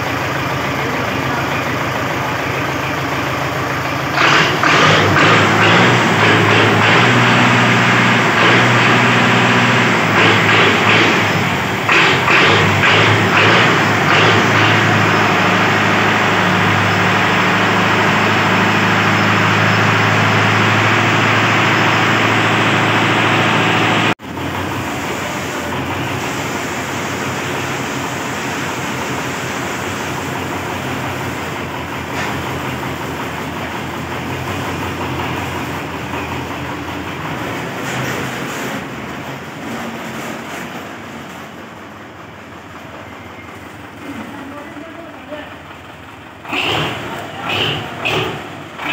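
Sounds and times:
tractor diesel engine running: 0.0s - 48.9s.

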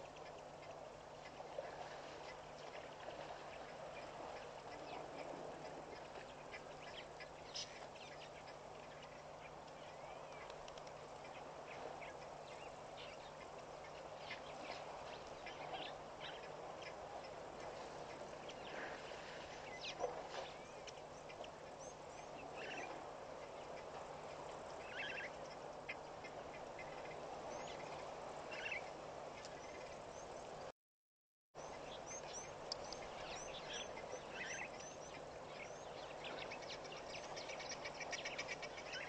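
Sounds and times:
birds calling: 0.0s - 30.3s, 31.6s - 39.0s
faint low hum: 0.0s - 30.7s.

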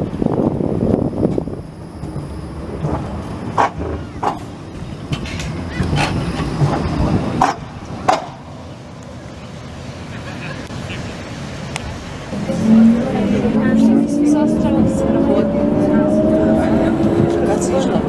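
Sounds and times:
tram rumbling past: 0.0s - 18.0s
wheels clacking on track: 0.0s - 18.0s.

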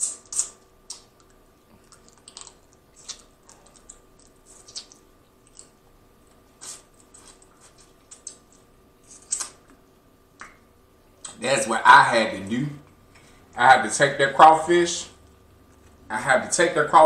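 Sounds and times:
wet eating smacks and sucking: 0.0s - 9.8s.

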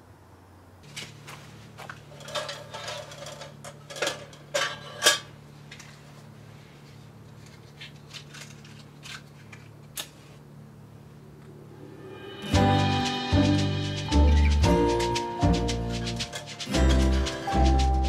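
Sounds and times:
low steady hum: 0.0s - 18.0s
lantern clinking and clicking: 14.0s - 18.0s.

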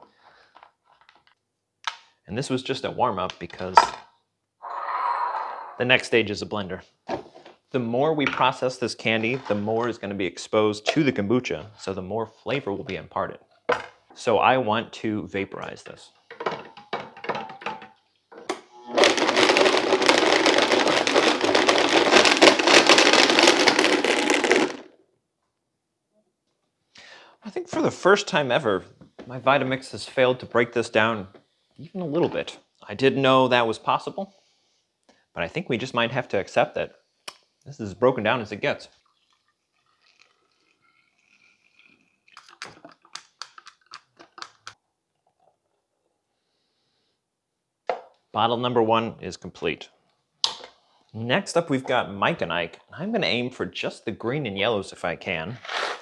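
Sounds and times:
blender rattling whir: 18.9s - 24.7s
liquid pouring through funnel: 18.9s - 24.8s, 38.9s - 44.6s.

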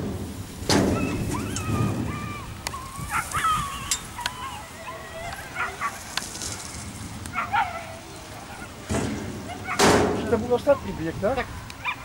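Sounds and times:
dogs yelping and whining: 0.9s - 6.1s, 7.3s - 9.9s, 10.5s - 12.0s.

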